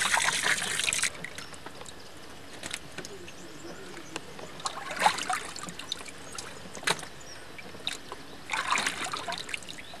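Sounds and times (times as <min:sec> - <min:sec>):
water splashing in plastic tub: 0:00.0 - 0:01.4, 0:04.6 - 0:05.9, 0:07.9 - 0:09.8.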